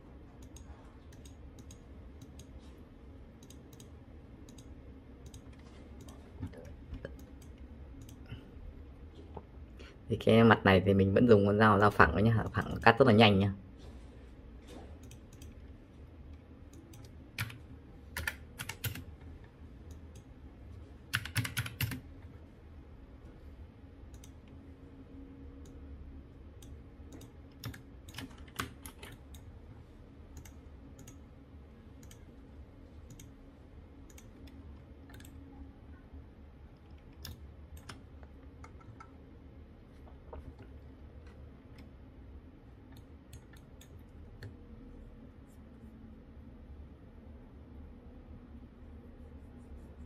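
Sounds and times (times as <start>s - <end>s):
faint low hum: 0.0s - 50.0s
keyboard and mouse clicks: 0.4s - 2.7s, 3.3s - 8.4s, 15.0s - 20.3s, 21.1s - 22.1s, 24.1s - 24.6s, 26.6s - 29.5s, 30.3s - 31.2s, 33.0s - 33.4s, 34.1s - 35.4s, 36.8s - 39.2s, 42.9s - 44.6s.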